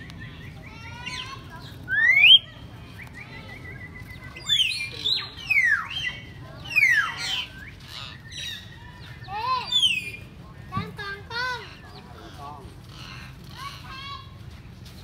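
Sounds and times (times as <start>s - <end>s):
birds whistling: 0.0s - 12.4s.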